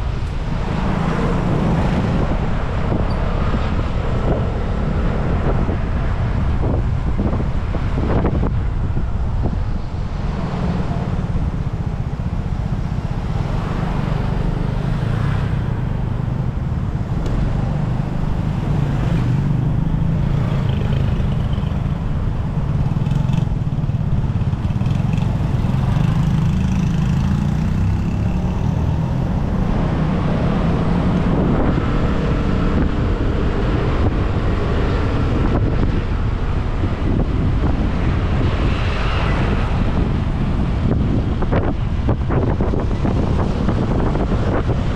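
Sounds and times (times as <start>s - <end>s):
road and wind noise: 0.0s - 44.9s.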